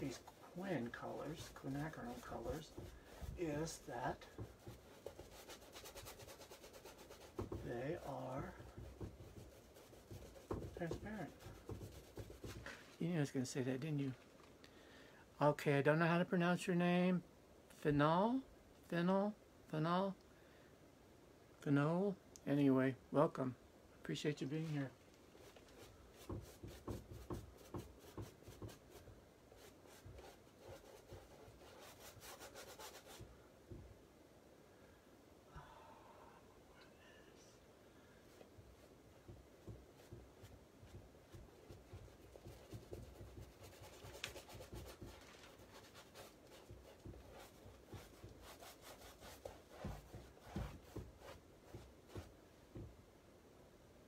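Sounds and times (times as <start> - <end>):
paintbrush strokes on canvas: 0.0 - 13.4, 24.6 - 33.8, 38.2 - 52.4
soft low thumps: 49.9 - 53.1.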